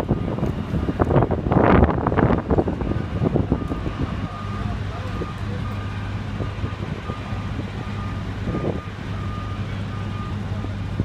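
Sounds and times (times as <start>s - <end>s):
diesel engine droning: 0.0s - 11.0s.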